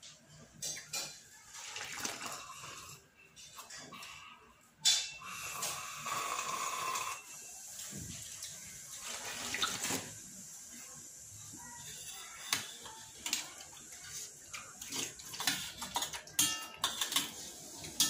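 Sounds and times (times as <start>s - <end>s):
metal spoon clinking on metal plate: 15.4s - 17.4s.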